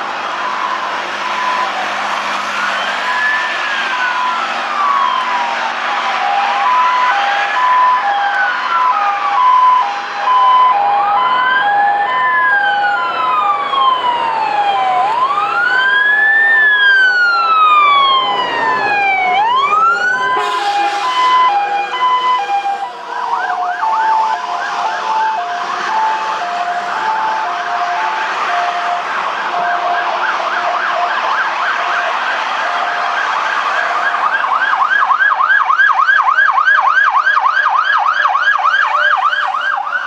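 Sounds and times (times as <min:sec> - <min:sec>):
wailing siren: 0:00.0 - 0:40.0
warbling siren: 0:00.0 - 0:40.0
two-tone horn: 0:20.3 - 0:23.0.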